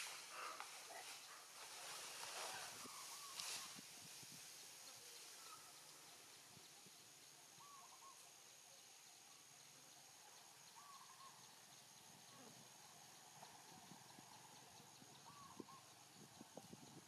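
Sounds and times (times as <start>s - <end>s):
steady high hiss: 0.0s - 17.0s
distant bird call: 10.7s - 11.5s.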